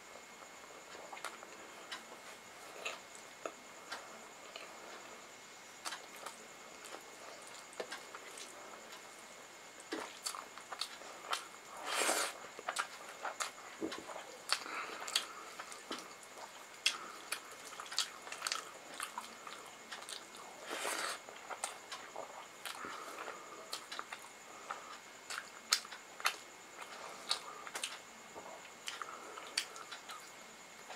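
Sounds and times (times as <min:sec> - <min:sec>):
chewing clicks and smacks: 0:12.6 - 0:20.4, 0:23.7 - 0:24.3, 0:24.9 - 0:28.0, 0:28.8 - 0:30.3.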